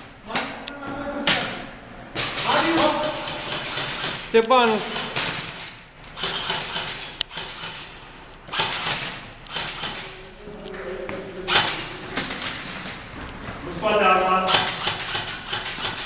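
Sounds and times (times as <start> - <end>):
airsoft rifle full-auto bursts: 2.2 - 7.9, 8.5 - 10.0, 14.5 - 16.0.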